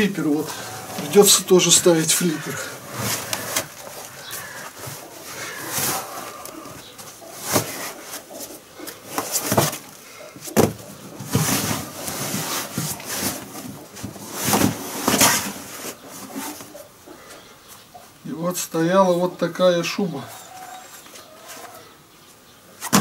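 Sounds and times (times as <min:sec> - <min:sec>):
rubber scraping and flopping: 0:00.4 - 0:06.6.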